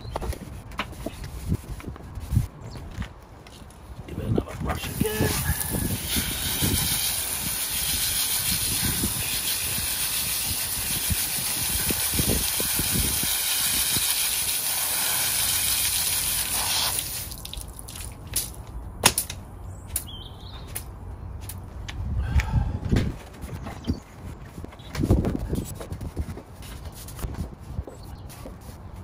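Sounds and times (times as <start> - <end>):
hose spraying water: 4.8 - 18.1.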